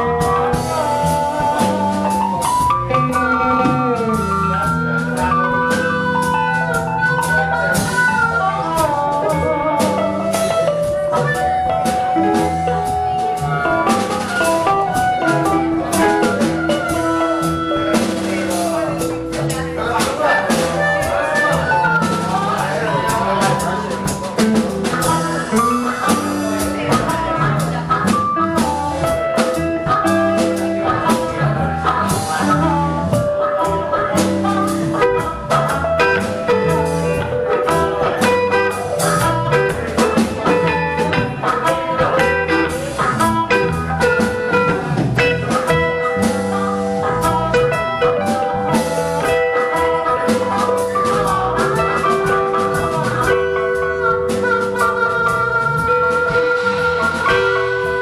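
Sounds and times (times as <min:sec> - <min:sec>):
drum kit: 0:00.0 - 0:58.0
electric guitars: 0:00.0 - 0:58.0
harmonica lead: 0:00.0 - 0:58.0
keyboard: 0:00.0 - 0:58.0.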